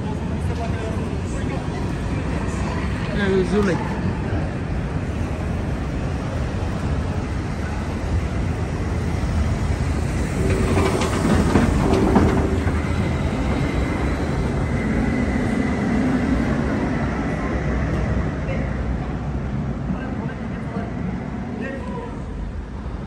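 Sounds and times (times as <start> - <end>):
tram rumbling on rails: 0.0 - 23.0
tram wheels clattering on track: 5.0 - 22.1.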